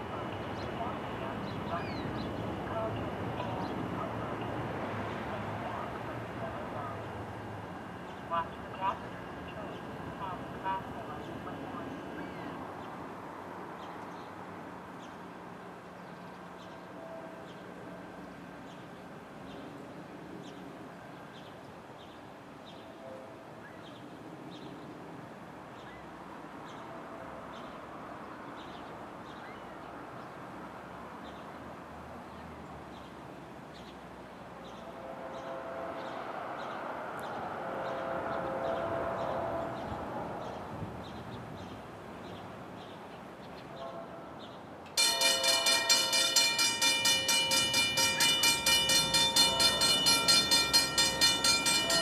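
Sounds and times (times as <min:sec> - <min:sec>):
distant train horn blasts: 0:16.6 - 0:18.3, 0:22.8 - 0:23.8, 0:34.6 - 0:41.2, 0:43.6 - 0:52.0.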